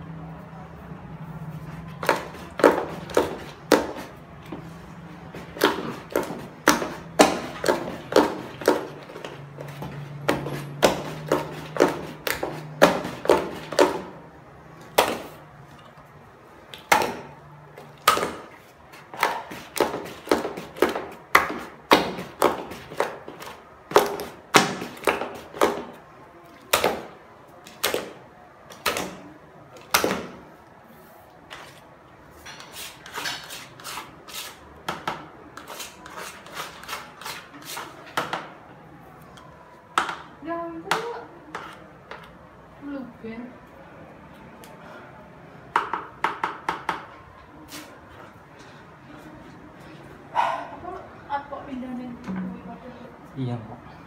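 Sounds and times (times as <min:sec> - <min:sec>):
stick knocking on plastic bucket: 0:05.4 - 0:14.1.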